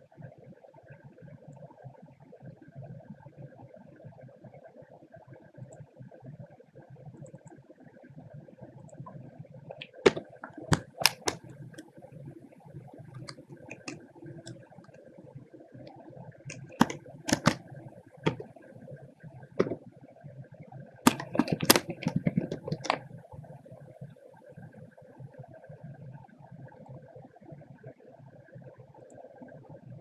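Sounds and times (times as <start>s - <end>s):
faint steady hum: 0.0s - 30.0s
keyboard typing clicks: 9.7s - 11.9s, 13.0s - 15.1s, 16.5s - 18.6s, 19.6s - 19.8s, 21.1s - 23.1s.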